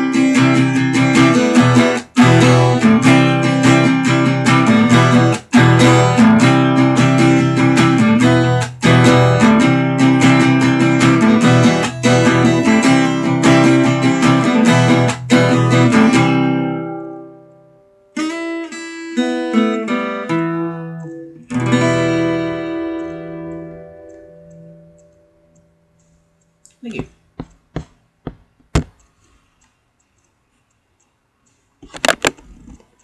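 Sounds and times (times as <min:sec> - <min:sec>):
acoustic guitar strumming: 0:00.0 - 0:26.4
picked guitar notes: 0:00.0 - 0:27.0.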